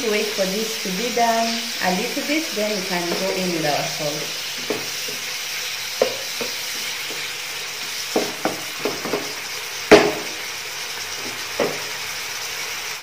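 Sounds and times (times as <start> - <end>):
meat sizzling in oil: 0.0 - 13.0
spatula knocking against pan: 4.6 - 5.2, 6.0 - 7.3, 8.1 - 10.4, 11.2 - 11.9.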